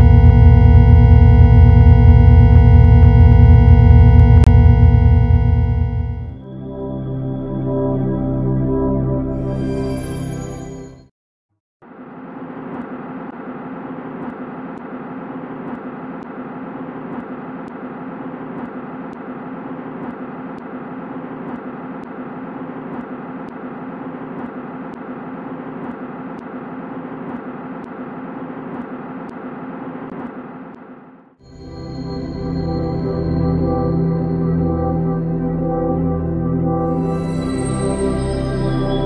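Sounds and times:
dense low drone: 0.0 - 9.0, 32.2 - 39.0.

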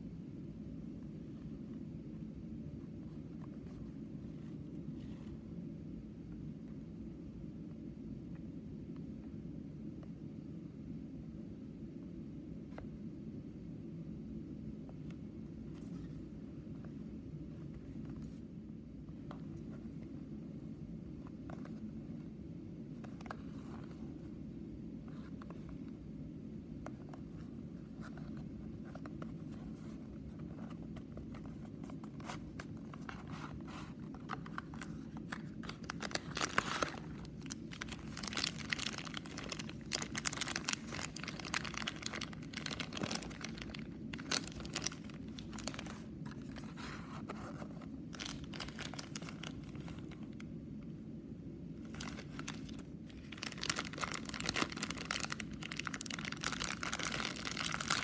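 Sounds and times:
low steady hum: 0.0 - 58.0
plastic bag crinkling: 33.0 - 46.8, 48.1 - 50.4, 51.8 - 58.0.

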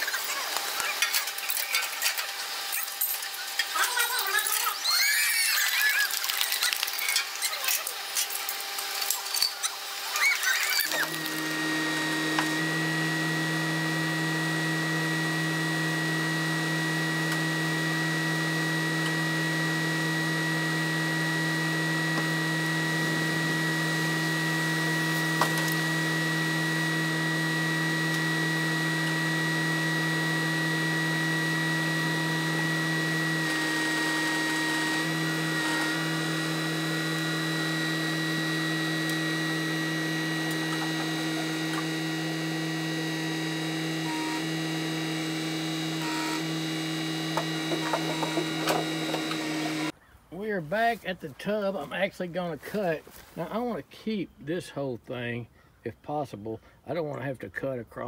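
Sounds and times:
hydraulic whine: 0.0 - 50.0
shrill squeals: 4.7 - 6.1
track loader engine running: 10.8 - 49.9.

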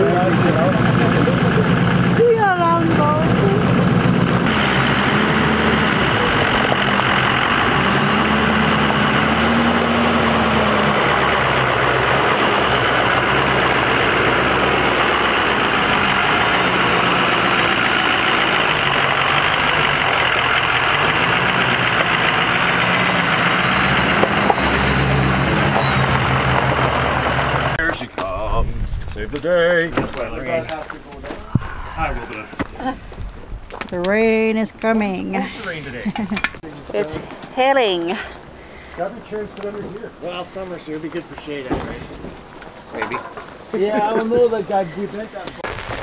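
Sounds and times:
vehicle engine idling: 0.0 - 28.0.

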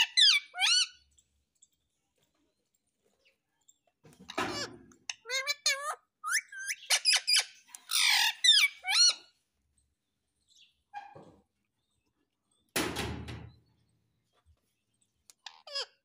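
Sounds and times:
parakeet squawking: 0.0 - 1.0, 4.4 - 9.3, 15.4 - 16.0.

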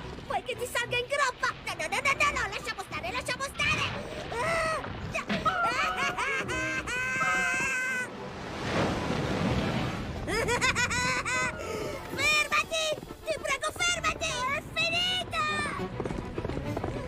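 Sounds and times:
cartoon boy screaming: 4.3 - 8.1.

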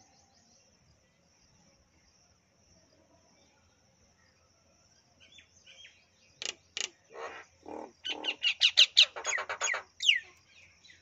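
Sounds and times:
myna calling: 7.1 - 10.2.

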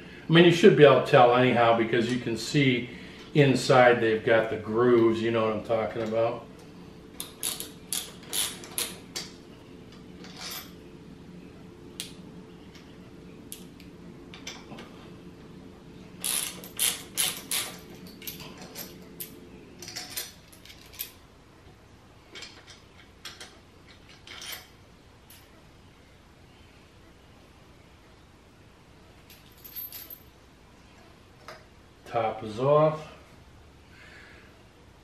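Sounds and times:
hand ratchet clicking: 16.2 - 18.4.

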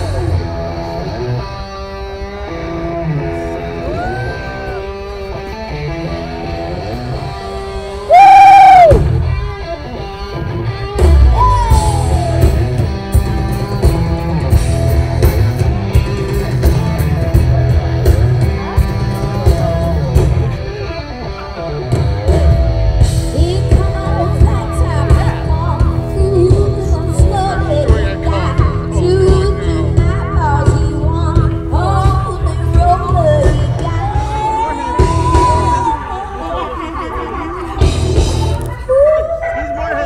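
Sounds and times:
heavy drums and bass: 0.0 - 1.4, 5.0 - 36.0, 37.8 - 38.9
live rock band playing: 0.0 - 39.2
woman singing: 23.3 - 36.0.

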